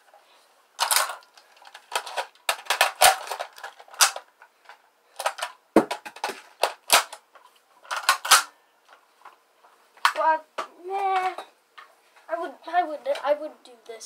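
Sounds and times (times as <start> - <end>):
airsoft gun clicks and clacks: 7.9 - 8.5.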